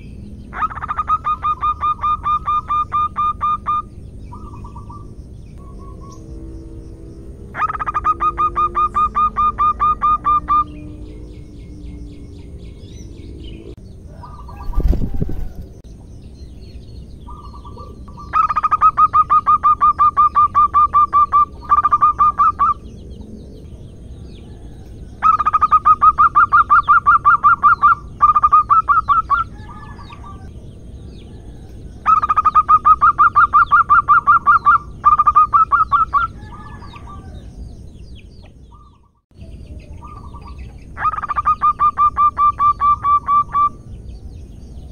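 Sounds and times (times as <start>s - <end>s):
dove cooing: 0.5s - 6.3s, 7.5s - 11.2s, 17.3s - 22.9s, 40.0s - 43.8s.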